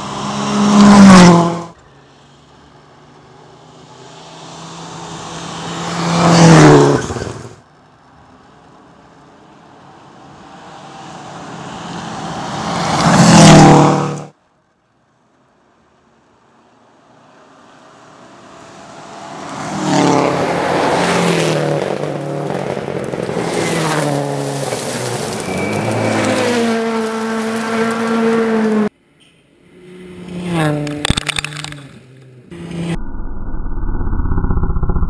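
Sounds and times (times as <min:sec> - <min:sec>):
rally car engine passing: 0:00.0 - 0:01.8, 0:03.0 - 0:07.6, 0:10.5 - 0:14.3, 0:17.5 - 0:28.9, 0:29.6 - 0:33.0
sharp cracks: 0:30.8 - 0:32.3.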